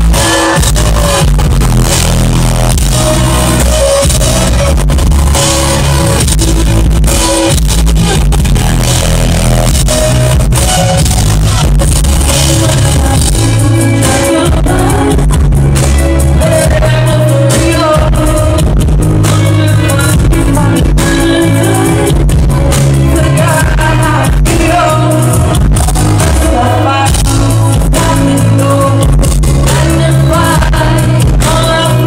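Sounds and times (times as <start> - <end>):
live pop music with heavy bass: 0.0 - 32.0
woman singing: 12.2 - 32.0.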